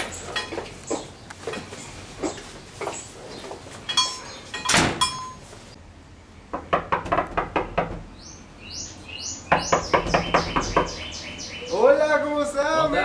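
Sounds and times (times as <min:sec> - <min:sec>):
birds chirping: 0:00.0 - 0:04.7, 0:08.1 - 0:13.0
sharp knocks and clicks: 0:06.5 - 0:08.1, 0:09.5 - 0:11.0.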